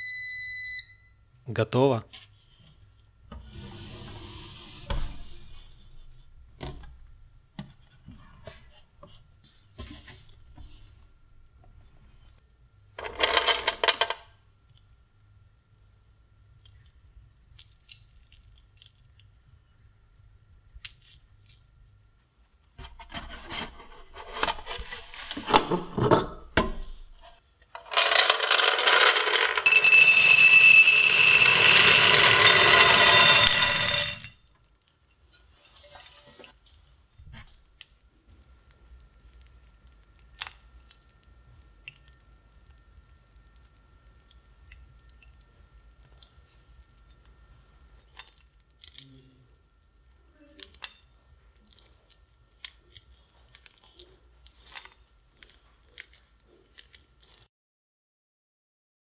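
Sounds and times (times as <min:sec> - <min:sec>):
peanuts pouring onto a plate: 0:27.8 - 0:34.3.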